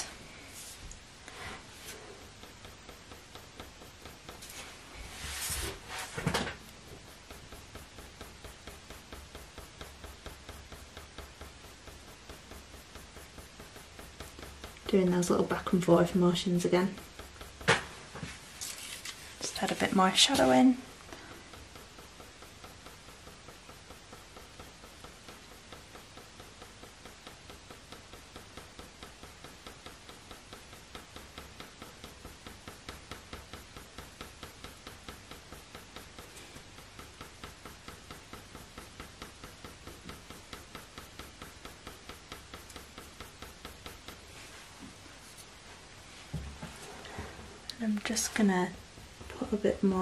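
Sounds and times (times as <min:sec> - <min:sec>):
coloured pencil scratching on paper: 0:03.0 - 0:06.2.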